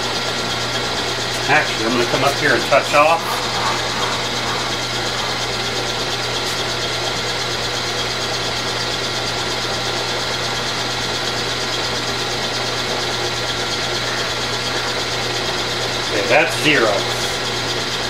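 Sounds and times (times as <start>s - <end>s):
electric hum: 0.0s - 8.2s
milling machine running: 0.0s - 18.0s.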